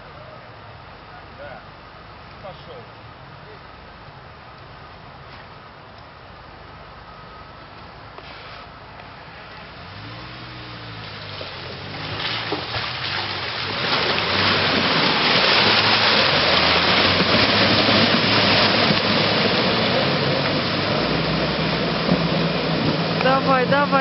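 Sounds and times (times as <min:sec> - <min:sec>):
engine running under load: 0:09.4 - 0:24.0
tyres churning muddy water: 0:09.6 - 0:24.0.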